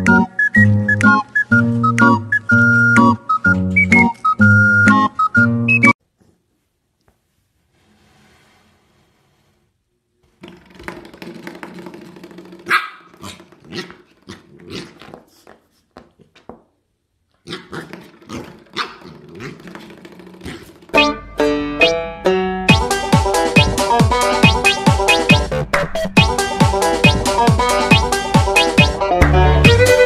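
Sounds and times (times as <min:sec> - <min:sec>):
puppy barking and growling: 0:12.6 - 0:15.2, 0:17.4 - 0:20.8.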